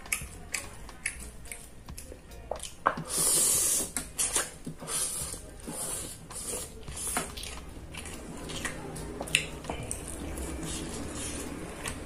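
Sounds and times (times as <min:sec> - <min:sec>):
noodles slurping: 0:03.1 - 0:12.0.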